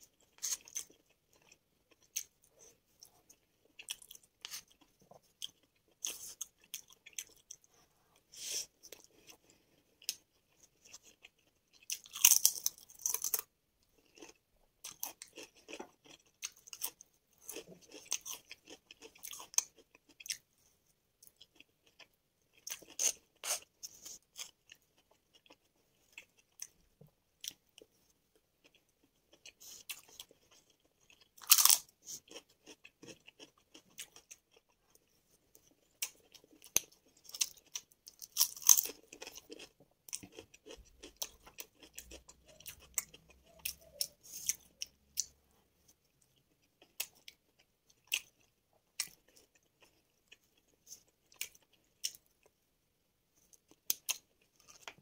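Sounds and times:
quiet chewing: 0.0s - 52.6s, 53.4s - 55.0s
crisp chip crunches: 36.4s - 43.0s.

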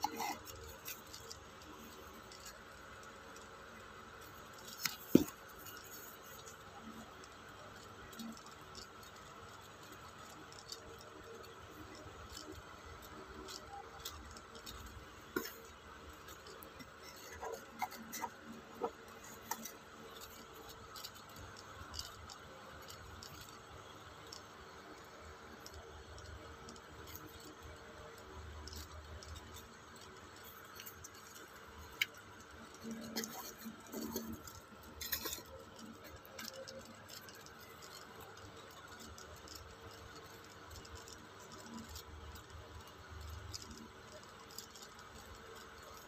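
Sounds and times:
steady background hum: 0.0s - 46.0s.

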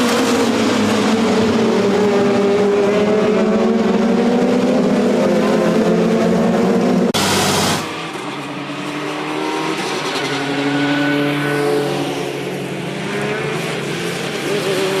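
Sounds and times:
race car engines: 0.0s - 15.0s
rush of noise: 3.8s - 8.3s.

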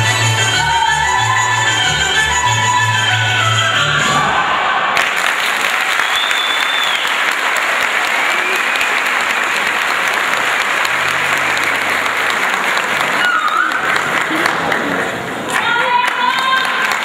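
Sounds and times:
folk dance music: 0.0s - 4.7s, 8.3s - 16.6s
audience applauding: 4.9s - 17.0s.

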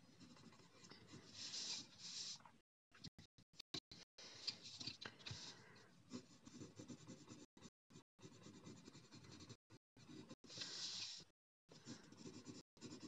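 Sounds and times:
pencil scratching on paper: 0.0s - 2.4s, 6.1s - 13.0s.

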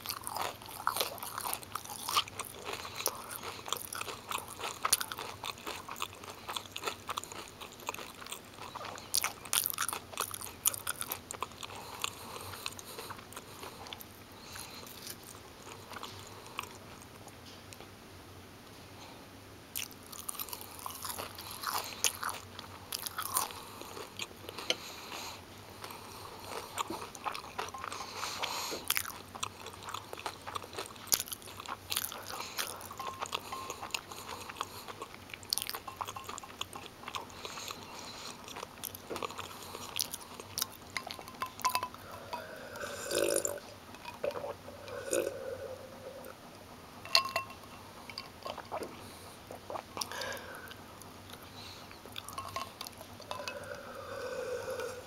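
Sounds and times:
crunchy chewing: 0.0s - 17.9s, 19.7s - 46.4s, 47.1s - 55.0s.

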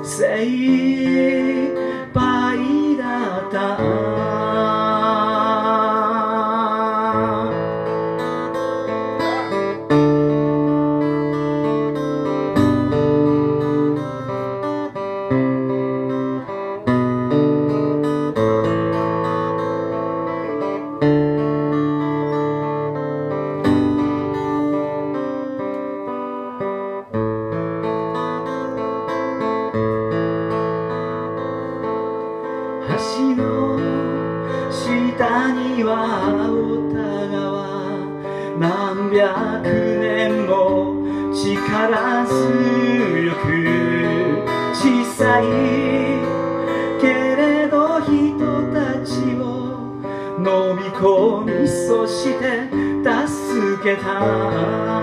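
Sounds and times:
man singing: 0.0s - 11.4s, 32.6s - 55.0s
acoustic guitar strumming: 0.0s - 55.0s.

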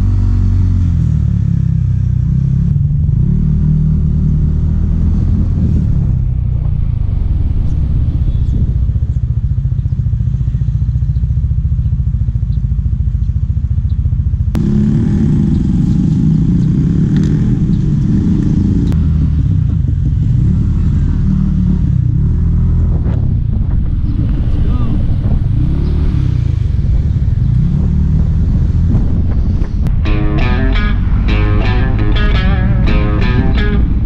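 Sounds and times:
wind rumble: 0.8s - 34.0s
scooter engine running: 5.9s - 20.2s.

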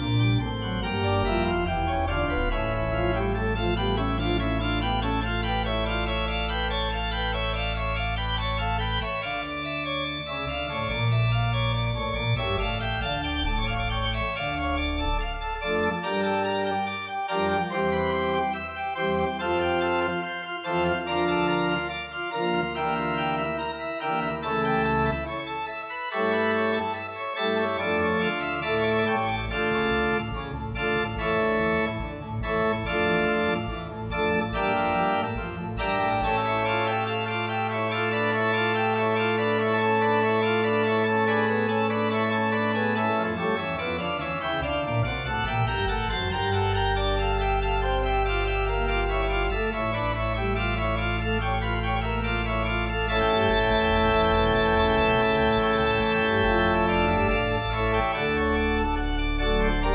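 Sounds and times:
organ chords: 0.0s - 59.9s.

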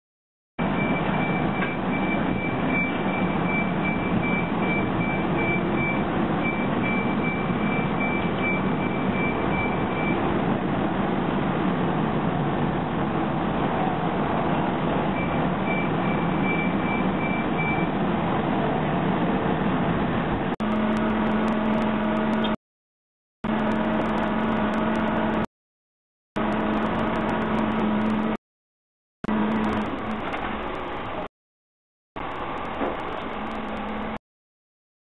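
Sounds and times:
construction site rushing noise: 0.6s - 22.6s, 23.4s - 25.5s, 26.4s - 28.4s, 29.2s - 31.3s, 32.2s - 34.2s
machine hum: 20.6s - 22.6s, 23.4s - 25.5s, 26.4s - 28.4s, 29.2s - 31.3s.

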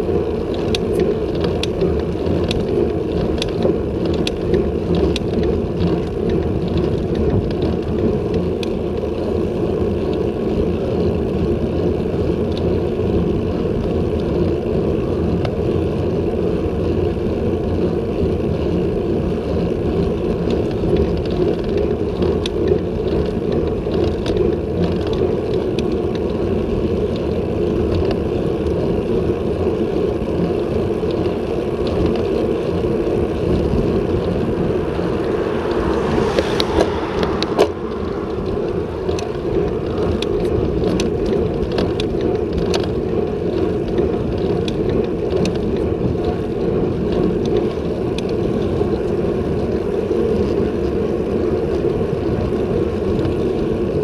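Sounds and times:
bike tyres rolling on asphalt: 0.0s - 54.0s
wind rush on microphone: 0.0s - 54.0s
car overtaking: 31.8s - 42.8s.

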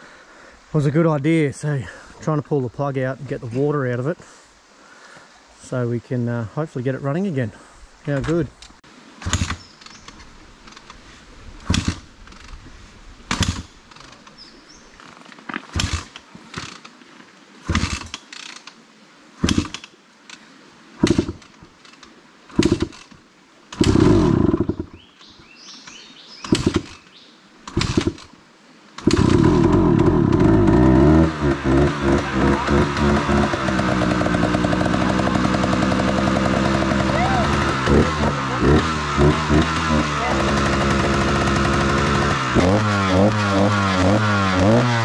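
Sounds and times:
dirt bike engine coughing and starting: 9.2s - 9.6s, 11.6s - 12.6s, 15.7s - 16.8s, 17.6s - 18.2s, 19.4s - 19.8s, 21.0s - 21.5s, 22.5s - 23.1s, 23.7s - 25.0s, 26.4s - 27.0s, 27.7s - 28.3s, 29.0s - 45.0s.

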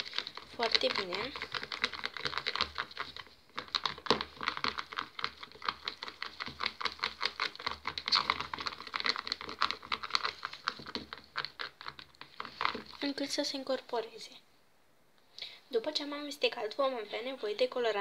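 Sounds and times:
stick scraping plastic bowl: 0.0s - 13.4s.

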